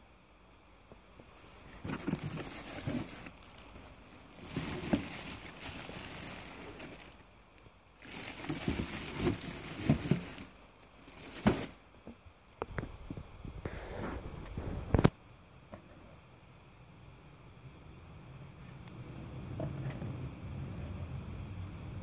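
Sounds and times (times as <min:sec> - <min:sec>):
plastic bag crinkling: 0:01.6 - 0:11.8.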